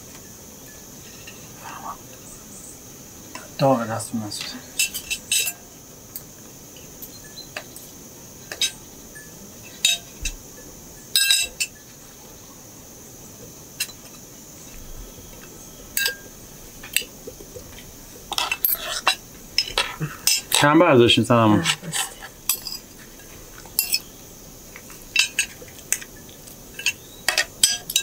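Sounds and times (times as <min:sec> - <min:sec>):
cutlery clinking on plates: 0:04.4 - 0:06.3, 0:08.5 - 0:08.8, 0:09.7 - 0:10.4, 0:11.1 - 0:11.8, 0:16.0 - 0:17.1, 0:21.6 - 0:24.1, 0:24.9 - 0:28.0.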